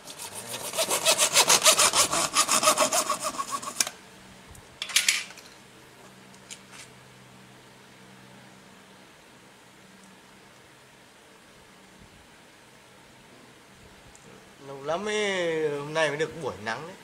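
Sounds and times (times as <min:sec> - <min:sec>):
hand saw cutting: 0:00.0 - 0:04.0.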